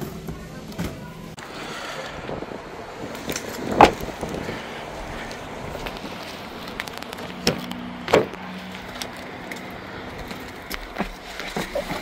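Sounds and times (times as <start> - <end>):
car door clunks: 3.7 - 4.1.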